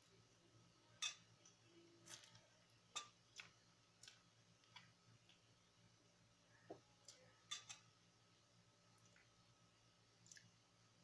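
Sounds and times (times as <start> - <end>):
chewing: 2.0 - 5.4
cutlery tapping ceramic plate: 7.5 - 7.8.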